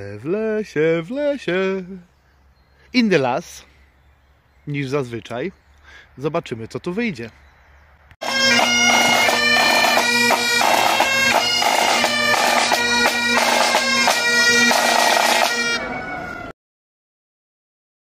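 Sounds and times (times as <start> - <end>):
bagpipes playing: 8.2 - 16.0.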